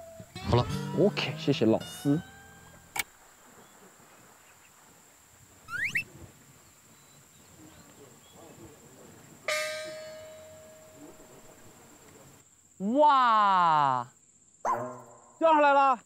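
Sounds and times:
short rising whistle: 5.7 - 6.0
bell-like chime: 9.5 - 11.5.

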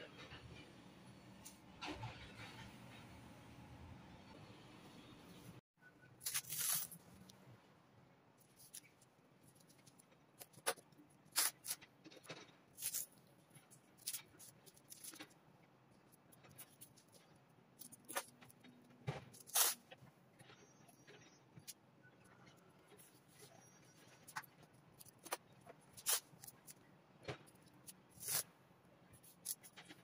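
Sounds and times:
masking tape crackling and rustling: 8.4 - 30.0.

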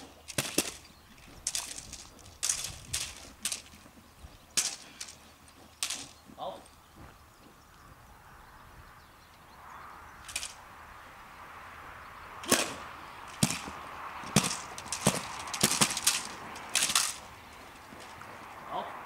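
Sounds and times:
sharp short cracks: 0.0 - 3.8, 4.5 - 5.2, 5.8 - 6.2, 10.2 - 10.6, 12.4 - 17.4.

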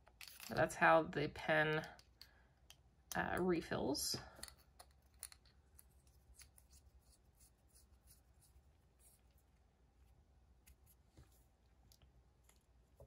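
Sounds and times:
faint metal pen scrapes and ticks: 4.3 - 13.0.

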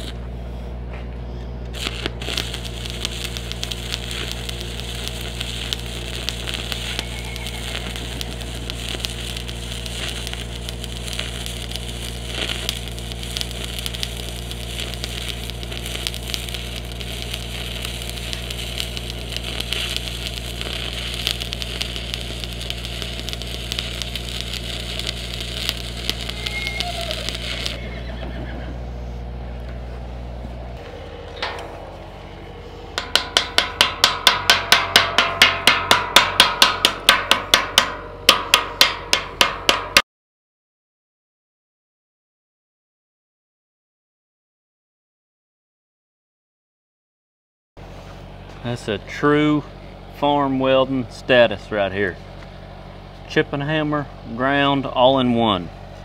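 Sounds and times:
welding arc crackling: 0.0 - 0.5, 1.7 - 28.0, 33.0 - 40.0
steady low hum: 0.0 - 40.0, 47.8 - 56.0.

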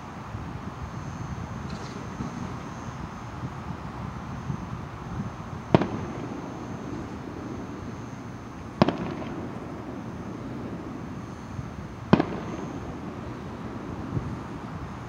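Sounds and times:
steady background hiss: 0.0 - 15.0
fireworks crackling: 4.4 - 15.0
fireworks bangs: 5.6 - 15.0.

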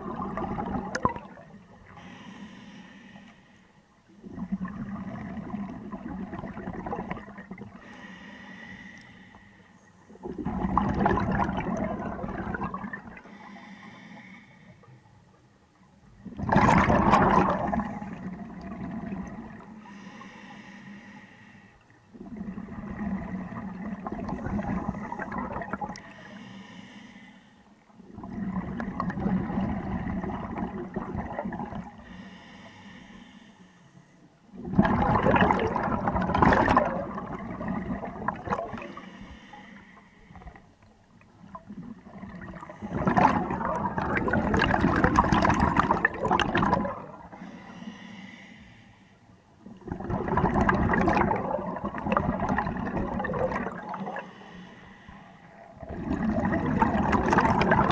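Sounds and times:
exhaust bubbling underwater: 0.0 - 2.0, 4.2 - 7.8, 10.2 - 13.4, 16.2 - 19.8, 22.1 - 26.1, 28.0 - 32.0, 34.5 - 39.0, 41.4 - 47.6, 49.7 - 54.4, 55.6 - 57.9
regulator breathing air rush: 2.0 - 3.8, 7.8 - 9.9, 13.2 - 15.0, 19.8 - 21.8, 26.0 - 27.8, 32.0 - 34.2, 38.8 - 40.6, 47.2 - 49.4, 53.9 - 55.7.

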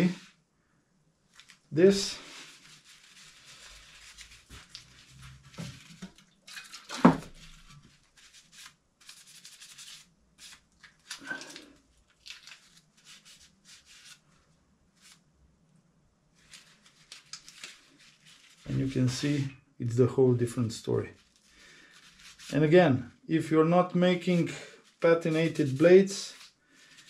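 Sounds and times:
hands rubbing and rustling: 1.3 - 14.4, 15.0 - 15.2, 16.4 - 19.4, 21.1 - 22.6, 24.2 - 27.0.

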